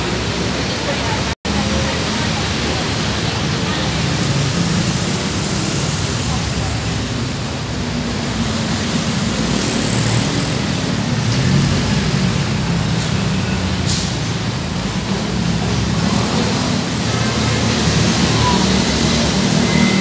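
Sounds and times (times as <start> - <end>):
cars passing: 0.0 - 20.0
motorcycles passing: 0.0 - 20.0.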